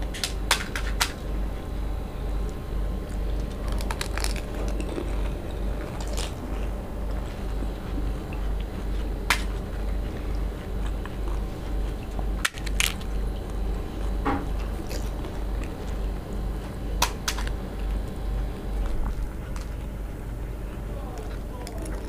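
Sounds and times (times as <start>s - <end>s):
steady low hum: 0.0s - 22.0s
chewing: 2.5s - 22.0s
crisp shells cracking: 3.0s - 7.5s, 12.0s - 13.9s, 14.5s - 16.1s, 17.0s - 17.6s.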